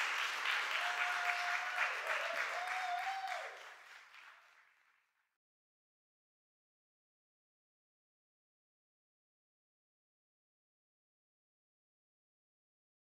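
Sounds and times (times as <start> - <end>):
long held cheer: 0.0 - 4.3
audience applauding: 0.0 - 5.1.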